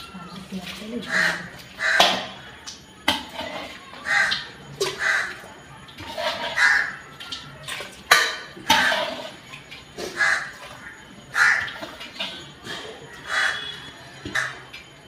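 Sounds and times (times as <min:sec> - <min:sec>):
crows cawing: 0:01.1 - 0:02.3, 0:04.0 - 0:05.4, 0:06.5 - 0:07.0, 0:10.1 - 0:11.8, 0:13.2 - 0:14.7
metal ladle scraping a pot: 0:06.0 - 0:07.0, 0:08.1 - 0:10.6.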